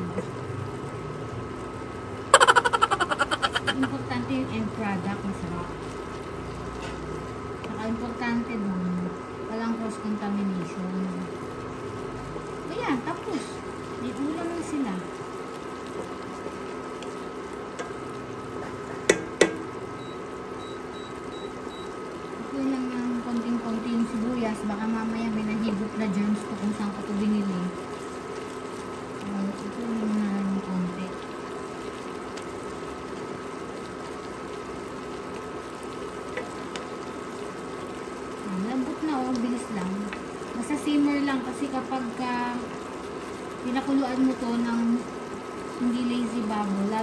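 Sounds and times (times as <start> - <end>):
sauce bubbling in a wok: 0.0 - 47.0
wooden spatula tapping pan: 19.1 - 19.7.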